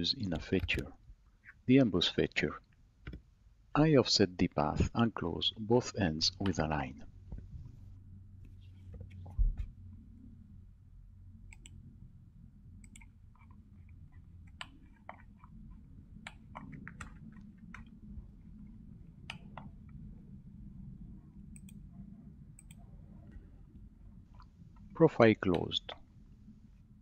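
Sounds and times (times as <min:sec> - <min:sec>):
faint low hum: 0:00.0 - 0:27.0
computer mouse clicking: 0:11.5 - 0:11.8, 0:12.8 - 0:18.0, 0:18.6 - 0:20.0, 0:21.5 - 0:21.9, 0:22.6 - 0:23.4.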